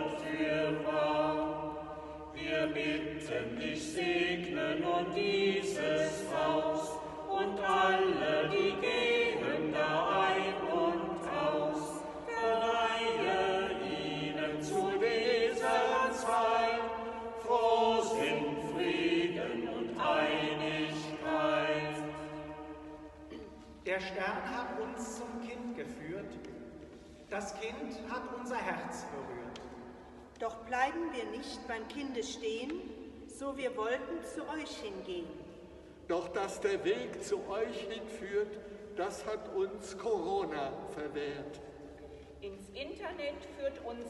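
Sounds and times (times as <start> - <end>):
group singing: 0.0 - 23.4.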